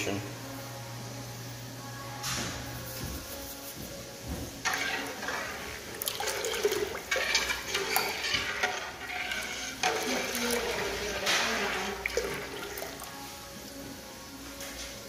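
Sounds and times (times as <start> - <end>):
water sloshing in pot: 4.6 - 13.8.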